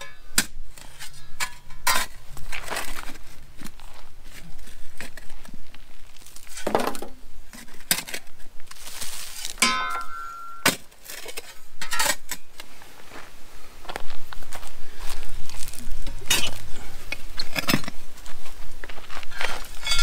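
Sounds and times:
blade clinking on stones: 9.6s - 10.8s, 19.8s - 20.0s.

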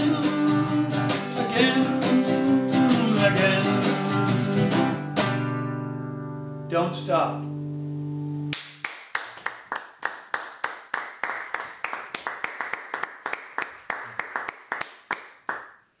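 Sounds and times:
person clapping: 8.5s - 15.9s.

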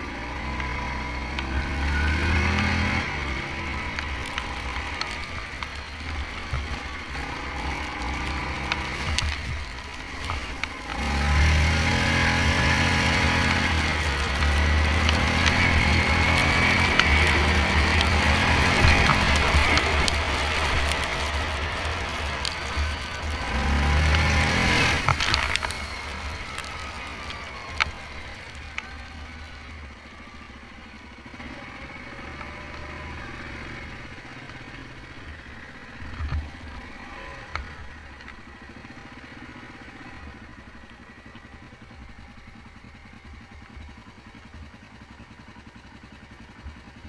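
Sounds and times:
quad bike engine running: 0.0s - 47.0s
sharp clicks: 2.4s - 30.0s.

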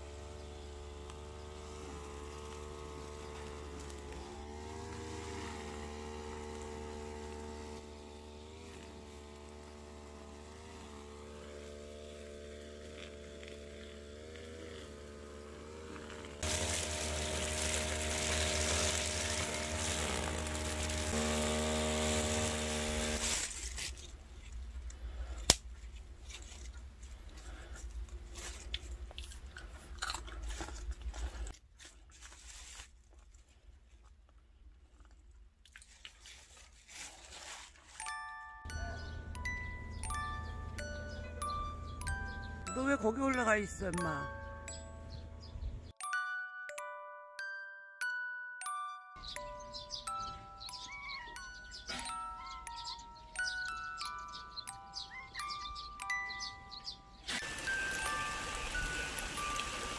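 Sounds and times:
brush cutter engine running: 0.0s - 24.2s, 37.3s - 45.9s, 49.2s - 59.9s
trimmer head cutting grass: 0.0s - 24.2s, 36.9s - 45.6s, 49.2s - 59.9s.

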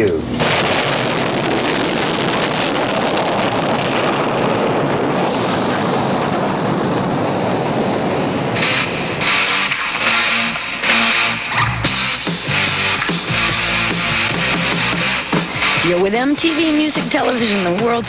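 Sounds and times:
loud rushing roar: 0.4s - 17.4s
electric guitar riff: 8.4s - 17.8s.

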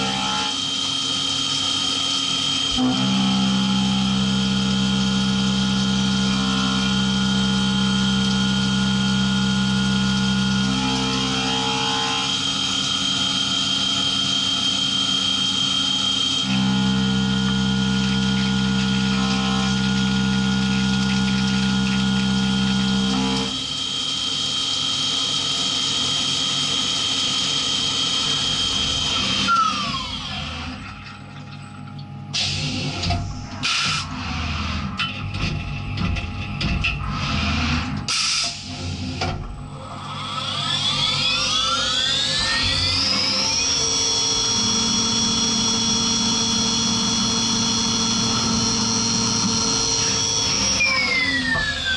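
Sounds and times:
machine spindle running: 38.9s - 51.9s
spindle whine: 39.7s - 51.9s.

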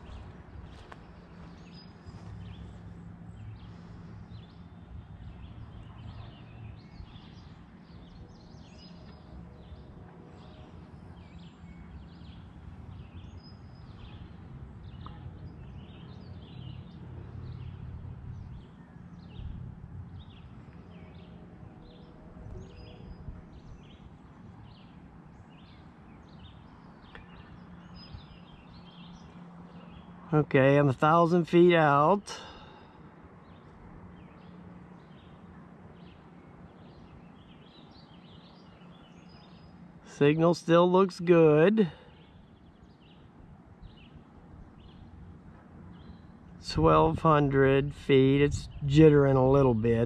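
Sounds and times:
steady low hum: 0.0s - 31.2s.

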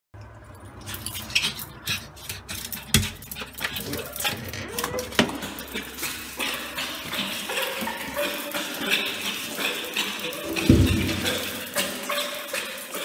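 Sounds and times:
dog claws clicking on tiles: 1.0s - 5.4s
louder knocks: 10.5s - 11.4s.

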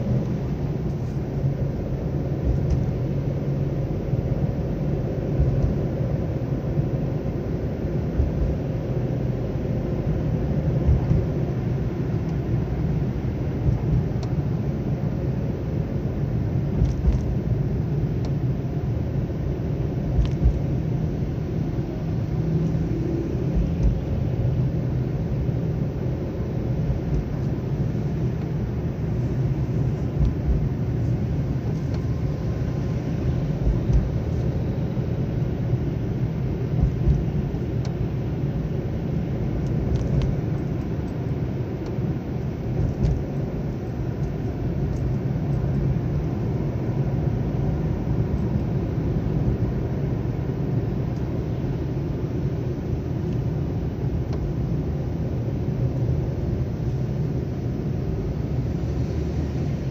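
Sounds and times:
engine and tyres rumbling: 0.0s - 59.9s.

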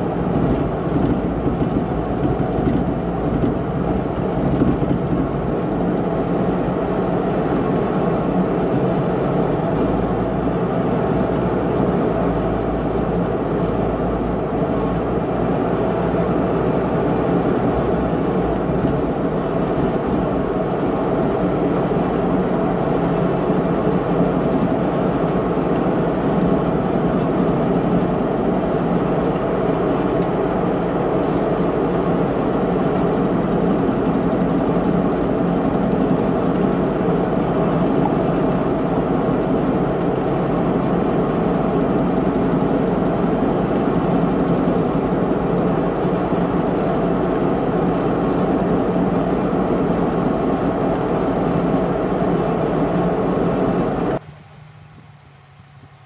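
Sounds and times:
road and cab rattle: 0.0s - 56.0s
truck diesel engine running: 0.0s - 56.0s.

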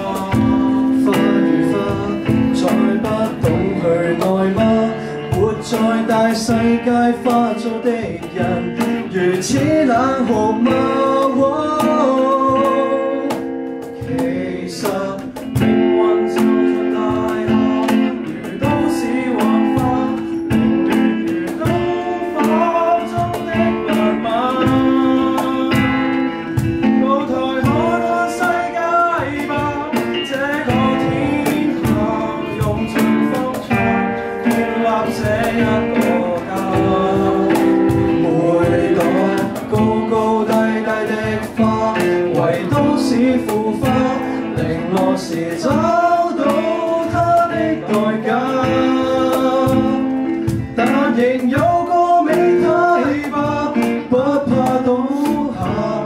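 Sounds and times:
acoustic guitar: 0.0s - 56.0s
cajon beat: 0.0s - 56.0s
men singing: 0.0s - 56.0s.

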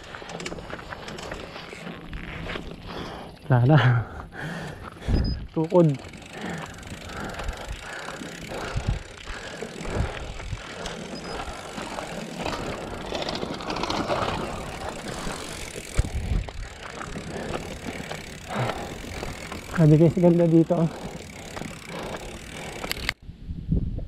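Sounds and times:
bike rattling over rocky road: 0.0s - 23.2s
wind buffeting microphone: 6.8s - 13.1s, 14.2s - 17.9s, 22.7s - 24.0s.

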